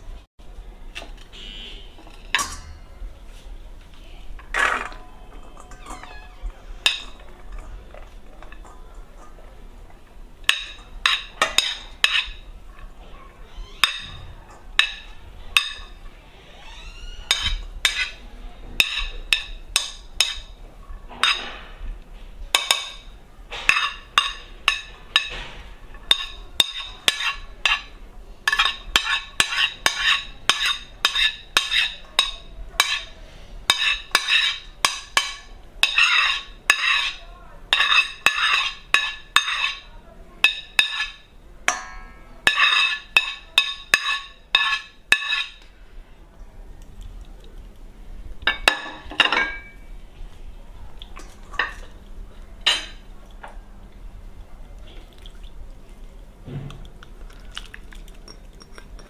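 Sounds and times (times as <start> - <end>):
metal spoon clinking on plate and bowl: 2.1 - 3.1, 18.8 - 20.6, 23.7 - 25.4, 26.0 - 45.6, 48.5 - 49.8, 52.6 - 53.1, 58.2 - 59.0.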